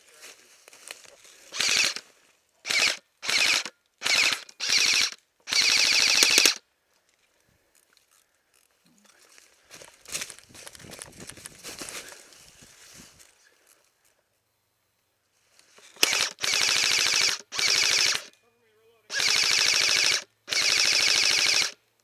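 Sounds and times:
footsteps through dry leaves: 0.0 - 2.4, 9.2 - 13.8
airsoft rifle bursts: 1.5 - 2.0, 2.6 - 6.6, 16.0 - 18.3, 19.1 - 21.8.

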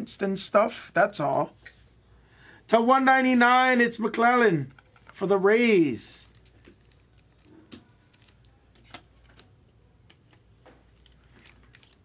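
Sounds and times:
trading cards rustling: 4.6 - 5.4, 6.2 - 12.0.

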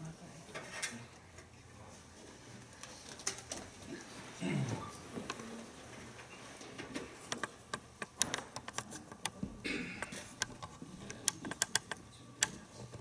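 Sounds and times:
laptop keyboard typing: 10.4 - 12.6.

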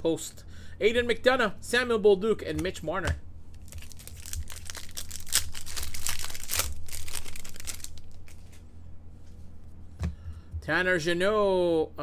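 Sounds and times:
cards shuffling: 3.5 - 8.7.

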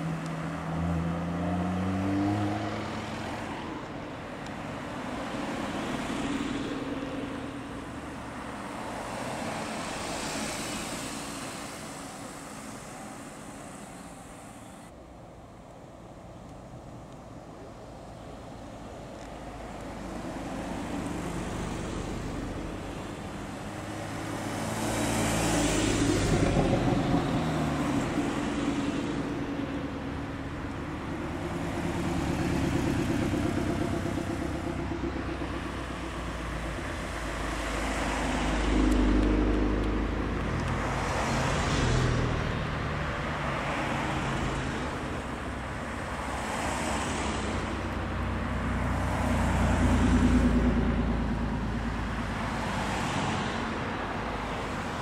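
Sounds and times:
cars driving slowly past: 0.0 - 55.0.

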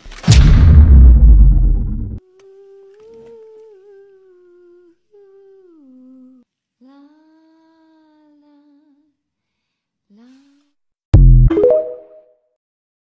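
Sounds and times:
high voice humming: 2.2 - 9.1.

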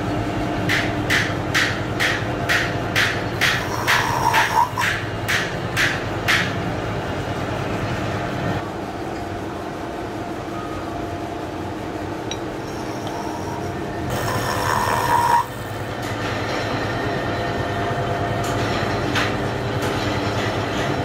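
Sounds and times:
milling machine humming: 2.9 - 5.7, 8.6 - 21.0
high cutting squeal: 3.7 - 4.8, 12.6 - 15.7.

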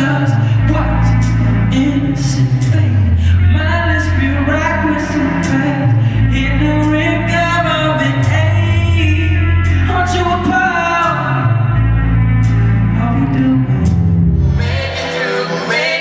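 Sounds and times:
dance music with singing: 13.0 - 16.0.

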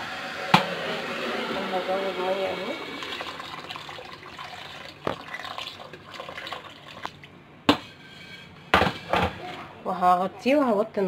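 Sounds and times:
water pouring into a pot: 0.0 - 7.2.

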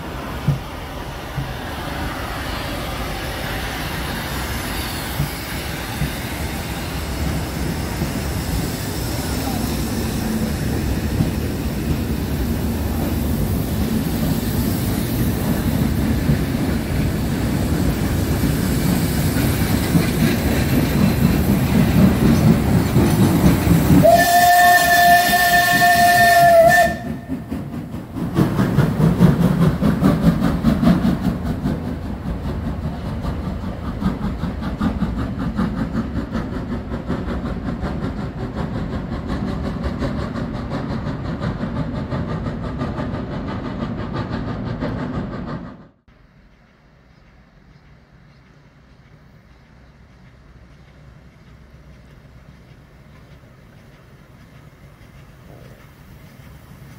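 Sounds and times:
steam train rumble and rail clatter: 0.0 - 56.9
steam locomotive whistle: 24.0 - 27.5.

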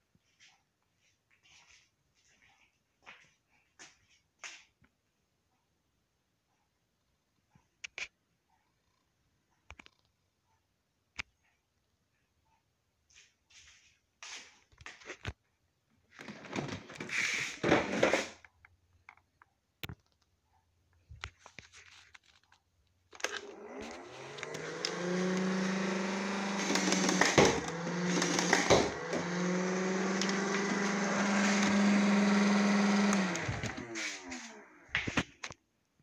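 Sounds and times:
plastic toy being handled: 16.1 - 25.6
toy blaster motor whirring: 23.2 - 34.8.

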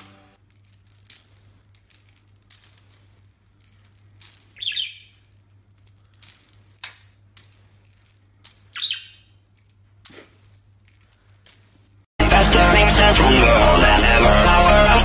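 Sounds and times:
toy ball bell jingling: 0.4 - 12.1.

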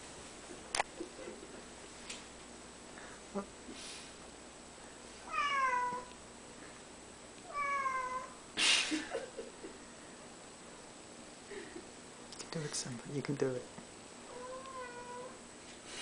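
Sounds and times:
cat meowing: 5.3 - 6.1, 7.5 - 8.4, 14.3 - 15.4.

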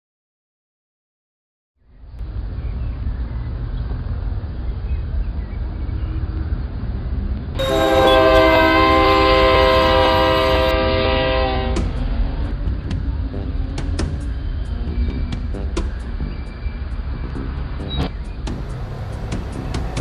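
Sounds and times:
low railway rumble: 1.8 - 20.0
train horn blast: 7.6 - 12.0.

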